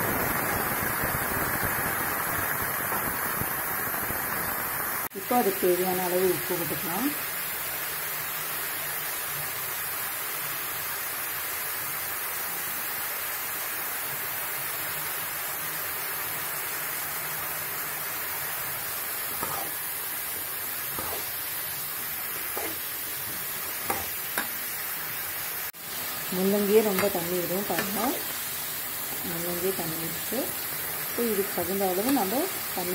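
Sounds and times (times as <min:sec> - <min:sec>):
radish sizzling in hot oil: 0:00.0 - 0:32.9.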